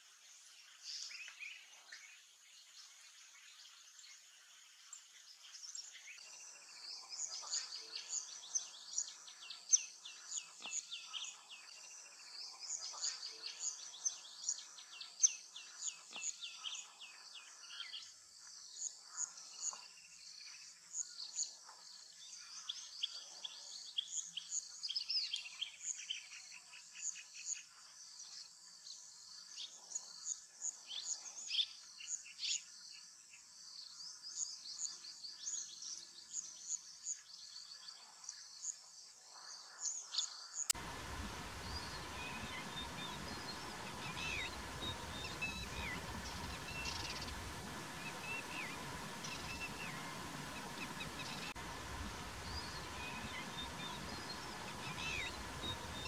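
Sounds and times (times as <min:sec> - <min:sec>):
small birds chirping: 0:39.8 - 0:56.0.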